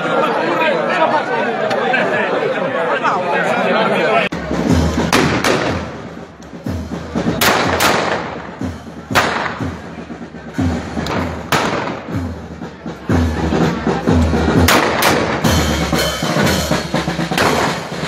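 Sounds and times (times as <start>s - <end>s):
crowd voices: 0.0s - 18.0s
gunshots with echoes: 5.1s - 6.0s, 7.4s - 9.8s, 11.1s - 12.1s, 14.7s - 15.6s, 17.4s - 17.9s.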